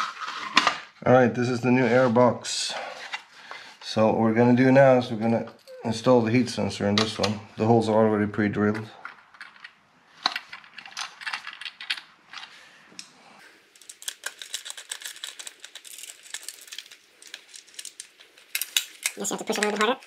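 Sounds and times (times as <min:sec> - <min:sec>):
rapid small clicks and scrapes: 0:13.7 - 0:20.0.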